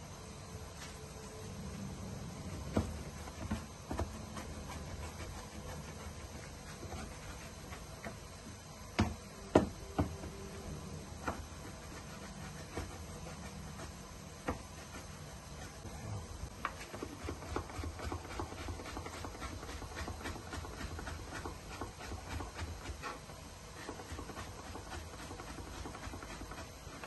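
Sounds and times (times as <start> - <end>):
knife chopping on plastic board: 8.9 - 10.3.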